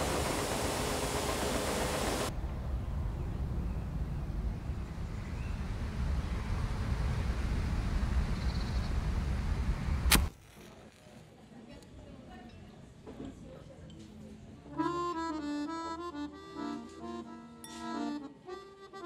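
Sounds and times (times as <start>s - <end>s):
outdoor ambient rumble: 0.0s - 10.8s
sharp click: 10.1s - 10.3s.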